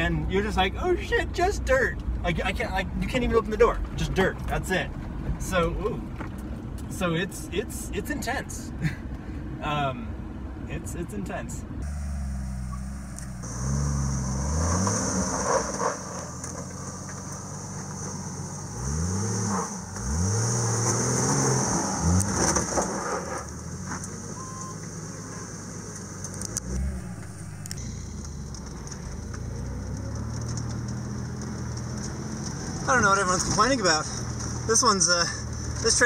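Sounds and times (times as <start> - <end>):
car engine revving: 11.8 - 36.0.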